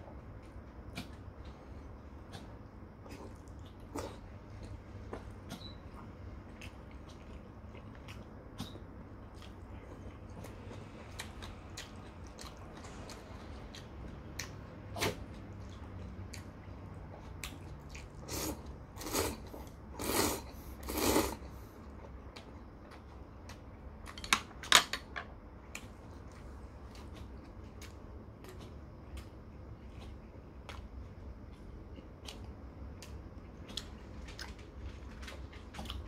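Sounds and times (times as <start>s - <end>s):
soft chewing: 0.0s - 24.2s, 25.5s - 36.0s
man slurping noodles: 20.0s - 21.4s.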